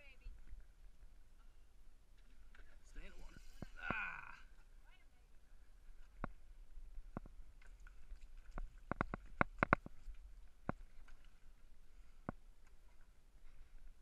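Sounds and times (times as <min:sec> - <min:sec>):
sharp irregular clicks and knocks: 0:07.1 - 0:11.3.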